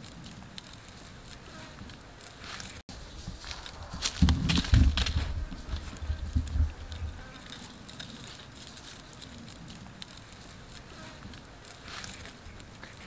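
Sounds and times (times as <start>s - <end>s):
faint ticks and crackles: 0.0s - 13.0s
steady outdoor hiss: 0.0s - 13.0s
knocks and bumps on sticks: 1.8s - 10.2s.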